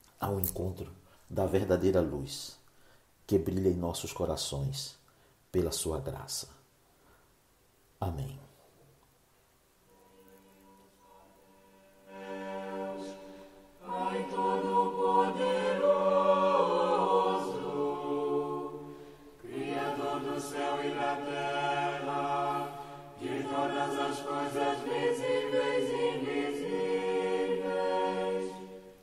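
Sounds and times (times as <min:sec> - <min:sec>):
choir singing slow chant: 0:09.8 - 0:29.0.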